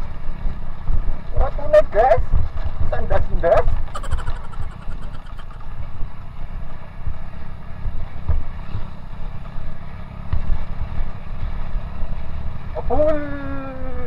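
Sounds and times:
motorcycle engine rumble: 0.0 - 14.0.

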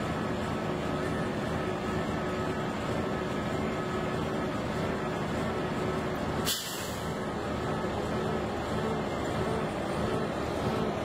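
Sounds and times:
crane engine humming and whining: 0.0 - 11.0.

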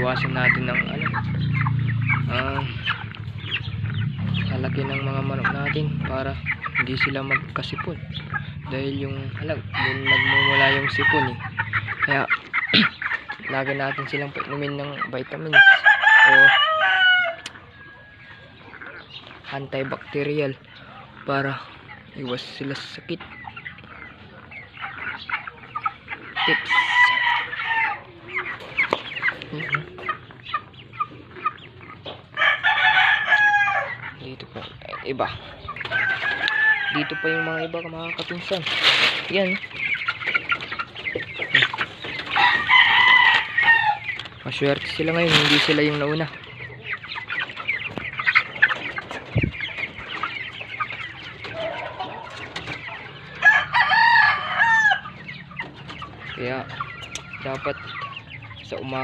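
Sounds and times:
chickens clucking and squawking: 0.0 - 59.0
loud drawn-out chicken call: 15.5 - 19.0, 26.4 - 30.2, 32.3 - 34.1, 35.7 - 37.7, 41.1 - 44.2, 53.2 - 55.4.

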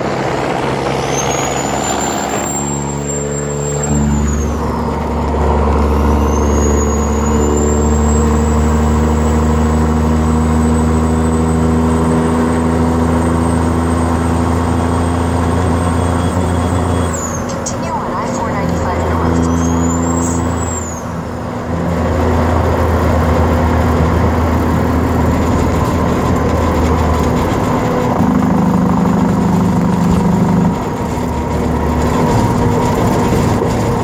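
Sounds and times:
diesel truck engine: 0.0 - 34.0
turbo whistle: 6.0 - 8.4, 14.7 - 17.6, 19.2 - 21.1.

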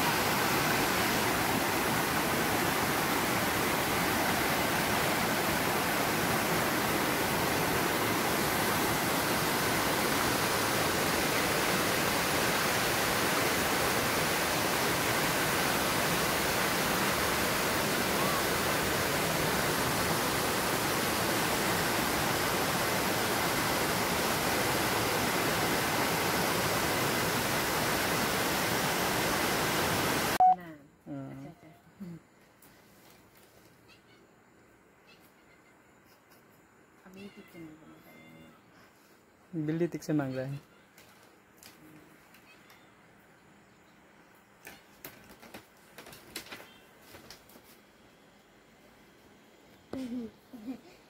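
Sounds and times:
stream rushing over stones: 0.0 - 30.4.

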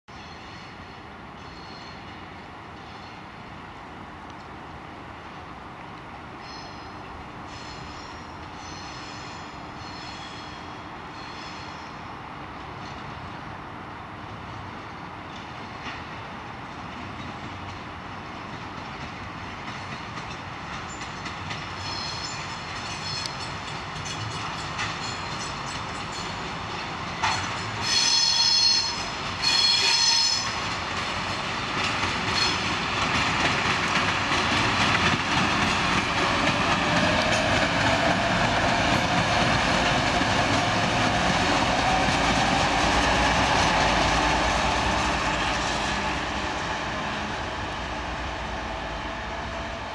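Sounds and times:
diesel locomotive engines running: 12.0 - 49.9.

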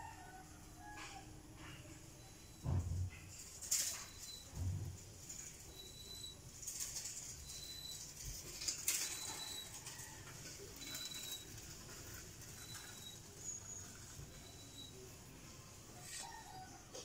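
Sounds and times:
faint high chirp: 2.2 - 2.6, 5.7 - 6.4, 12.5 - 16.8.

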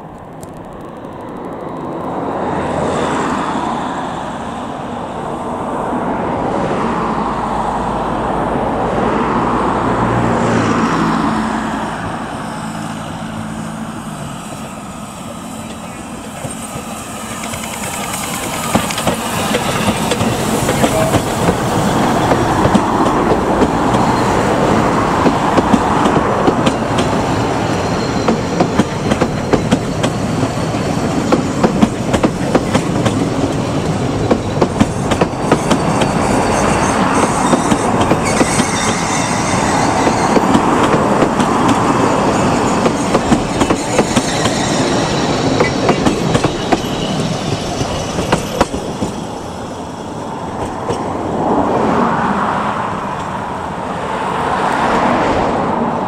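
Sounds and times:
steam locomotive passing: 0.0 - 56.0
train wheels clicking over rail joints: 14.0 - 49.5.

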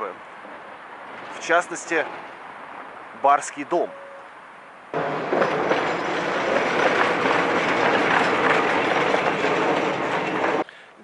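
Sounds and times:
mechanical rattling and clattering: 5.0 - 10.6.

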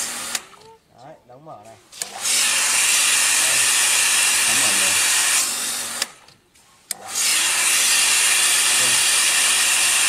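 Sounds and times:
water jetting from spray nozzle: 1.9 - 6.1, 7.0 - 10.0.

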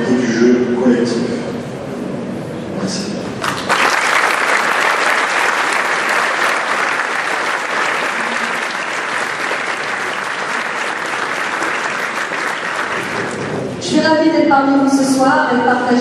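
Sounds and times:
audience applauding: 3.4 - 13.8.

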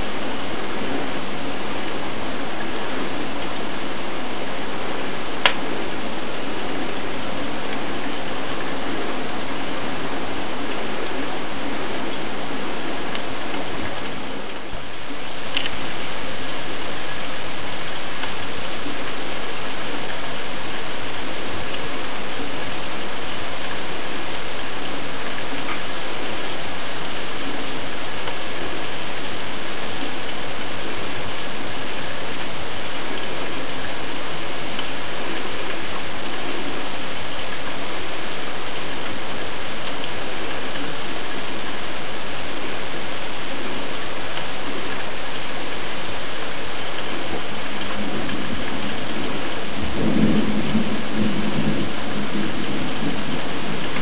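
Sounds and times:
wood coals crackling: 0.0 - 54.0.

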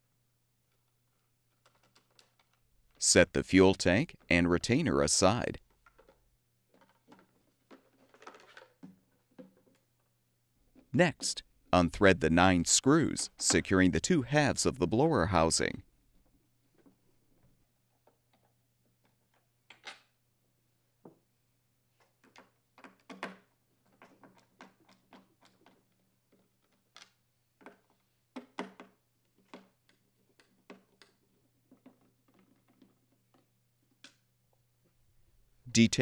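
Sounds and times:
plastic parts handled: 0.6 - 3.0.

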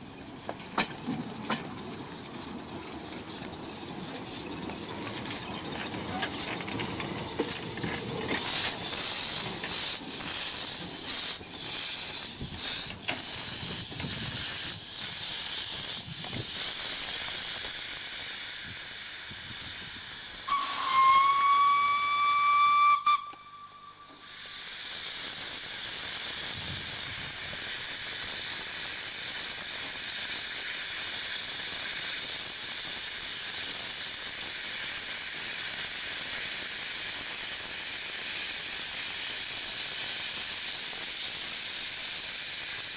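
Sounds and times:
steam locomotive chuffing: 0.0 - 42.9
steam venting hiss: 0.0 - 42.9
steam whistle blast: 20.4 - 24.5.

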